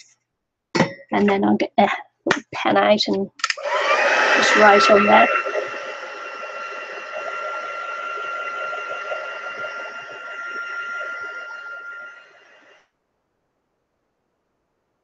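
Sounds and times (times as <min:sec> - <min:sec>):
heat gun whirring: 0:03.4 - 0:12.8.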